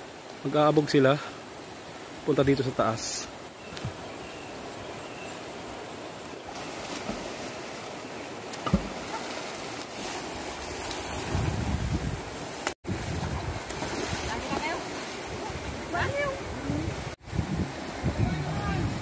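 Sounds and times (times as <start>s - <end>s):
short thump: 8.6s - 9.0s.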